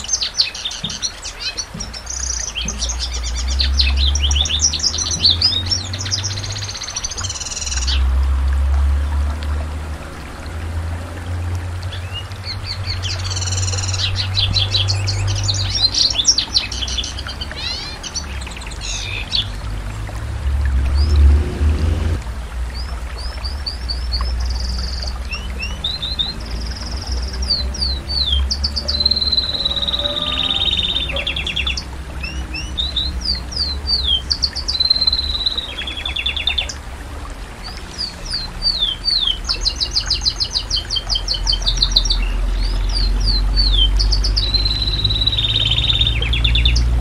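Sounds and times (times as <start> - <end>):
canary singing: 12.7 - 19.5, 24.6 - 36.8
low rumble: 18.7 - 33.3.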